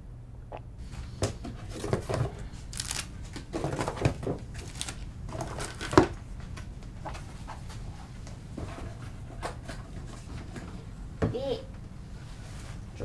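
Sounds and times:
low steady hum: 0:00.0 - 0:13.0
paper rustling: 0:01.7 - 0:06.1
small objects knocking: 0:02.7 - 0:06.1.

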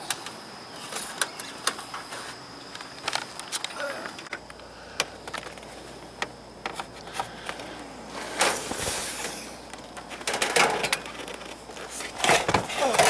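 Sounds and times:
scraping rustling noise: 0:08.1 - 0:13.0.

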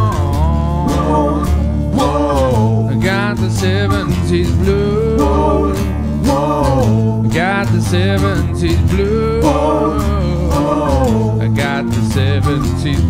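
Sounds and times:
wavering melody line: 0:00.0 - 0:07.4, 0:09.0 - 0:11.4
acoustic band playing blues-rock: 0:00.0 - 0:13.0.

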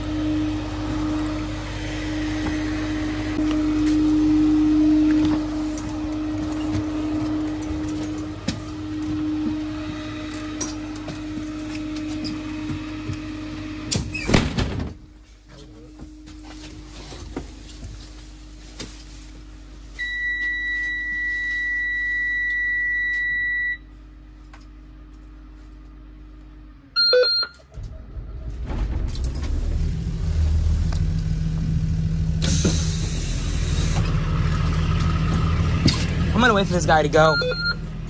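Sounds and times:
warning buzzer high tone: 0:00.0 - 0:13.6, 0:27.0 - 0:27.6, 0:36.4 - 0:38.0
diesel engine cranking and idling: 0:00.0 - 0:14.2, 0:24.0 - 0:38.0.

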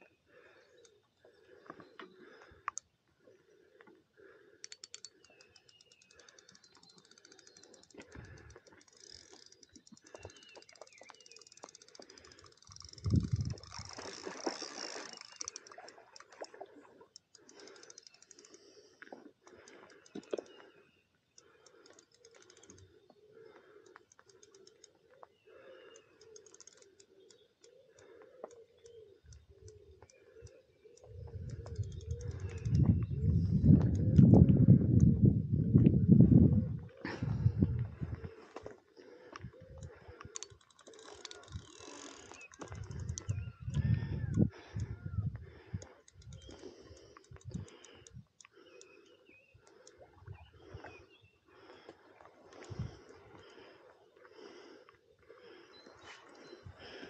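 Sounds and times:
fishing reel clicking: 0:04.4 - 0:20.6, 0:21.3 - 0:35.1, 0:39.7 - 0:50.8.

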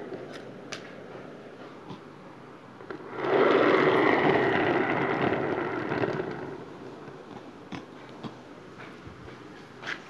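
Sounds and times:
cardboard toy sliding on tiles: 0:02.9 - 0:06.7.

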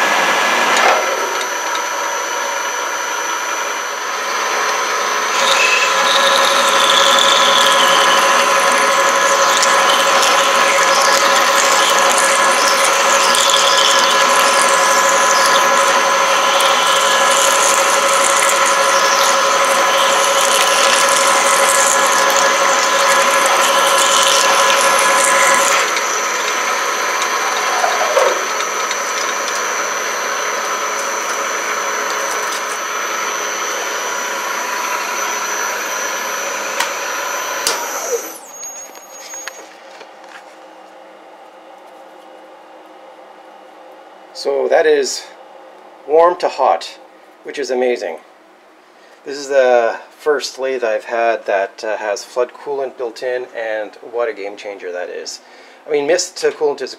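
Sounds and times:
lathe gear whine: 0:00.0 - 0:46.5
drill squealing in metal cut: 0:04.5 - 0:39.8.

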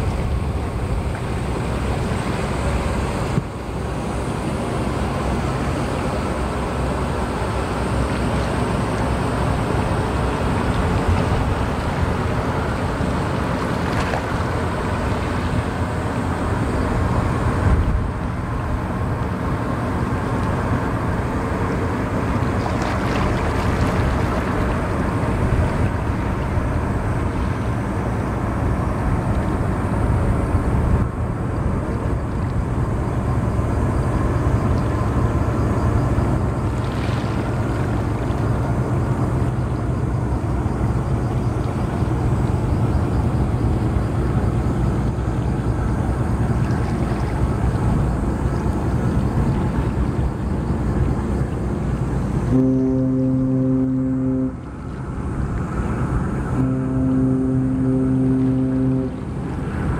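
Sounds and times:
low rumble of ship turbines: 0:00.0 - 0:59.9.

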